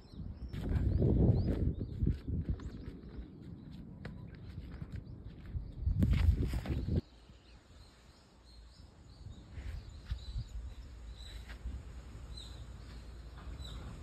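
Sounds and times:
bird chirping: 0:12.2 - 0:14.0.

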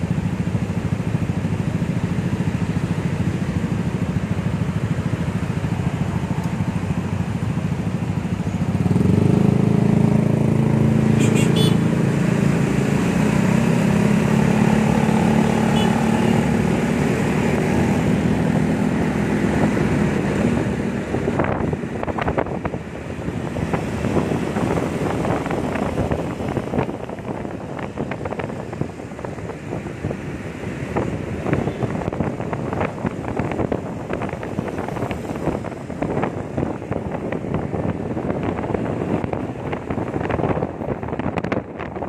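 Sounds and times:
wind buffeting microphone: 0:16.6 - 0:42.0.

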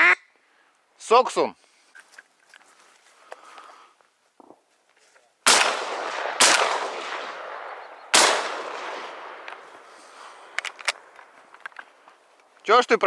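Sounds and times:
rolling echo of gunshots: 0:05.4 - 0:11.2
shotgun shots: 0:05.4 - 0:11.2.

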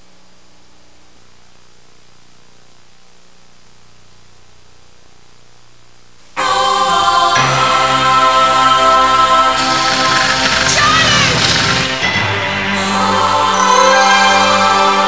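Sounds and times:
low mains hum: 0:00.0 - 0:15.0
tape hiss: 0:00.0 - 0:15.0
loud music: 0:06.4 - 0:15.0.

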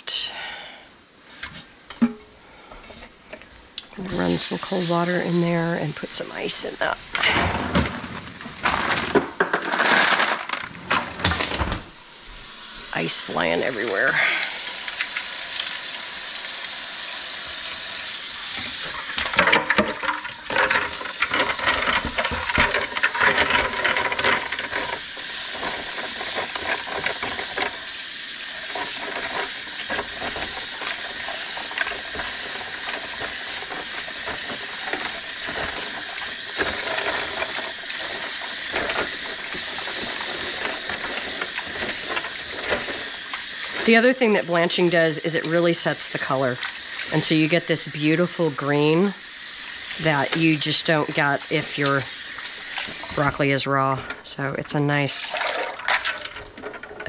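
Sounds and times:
faucet running water: 0:03.7 - 0:57.0
ice clattering into bowl: 0:04.1 - 0:11.8, 0:17.5 - 0:57.0
hands swishing water: 0:55.3 - 0:56.4.

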